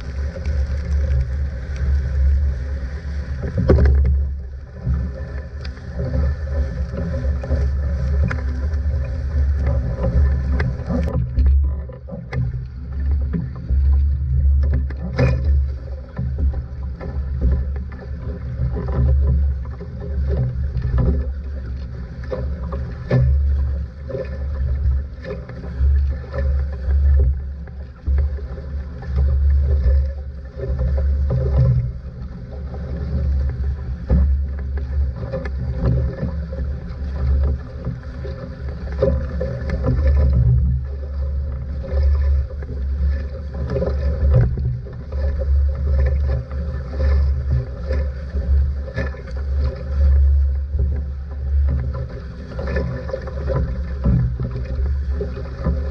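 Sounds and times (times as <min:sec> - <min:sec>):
heavy low rumble: 0:00.0 - 0:17.8
water rushing against hull: 0:00.0 - 0:55.9.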